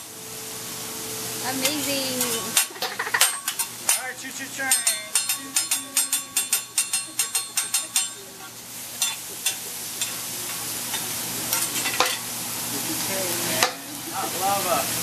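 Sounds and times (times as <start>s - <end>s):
vegetables sizzling: 0.0s - 15.0s
metal spatula clacking on griddle: 1.6s - 8.3s, 9.0s - 12.2s.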